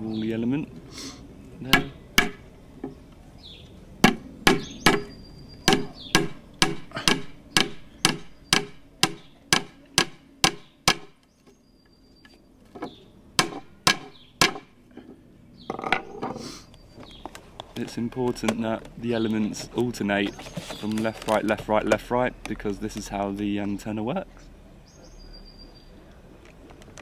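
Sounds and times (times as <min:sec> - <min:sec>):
hammer striking staple into wood: 0:01.7 - 0:02.4, 0:04.0 - 0:05.1, 0:05.7 - 0:11.2, 0:13.4 - 0:14.7.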